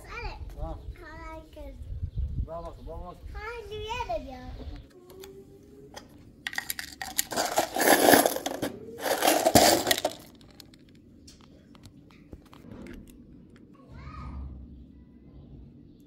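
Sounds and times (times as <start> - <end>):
metal parts rattling in plastic jar: 6.5 - 10.9.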